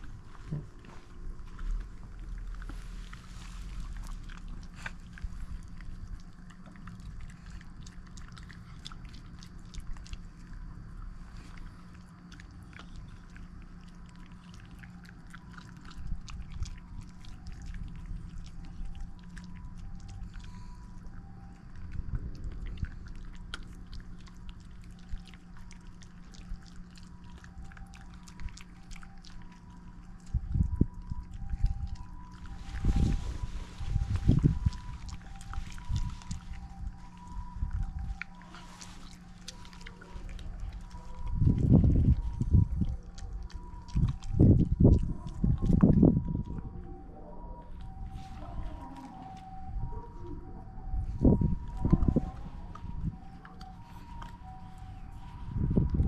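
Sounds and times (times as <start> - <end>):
dogs crunching and chewing: 0.0 - 56.0.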